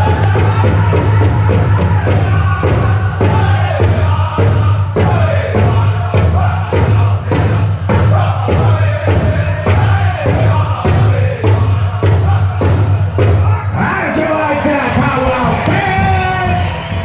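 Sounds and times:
bass drum steady beat: 0.0s - 13.6s
voices singing in chorus: 0.0s - 17.0s.

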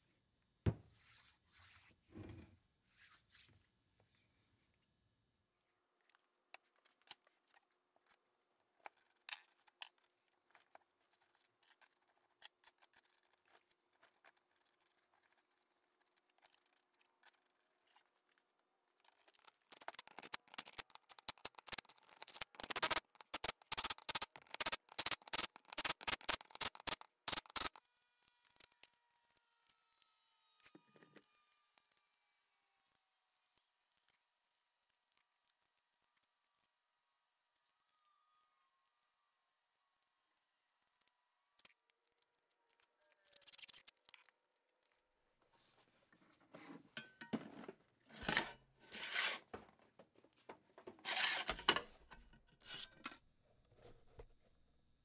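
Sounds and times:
metal parts clicking and knocking: 19.0s - 27.8s
tape pulled off roll crackling: 19.0s - 30.0s.

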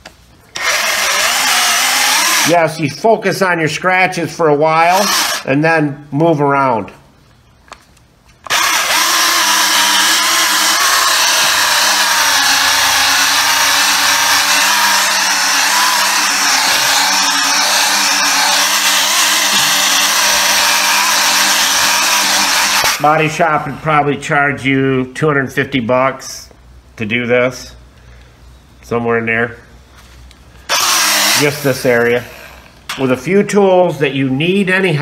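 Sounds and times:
cordless polisher running: 0.6s - 2.5s, 4.9s - 5.4s, 8.5s - 23.0s, 30.7s - 32.8s.

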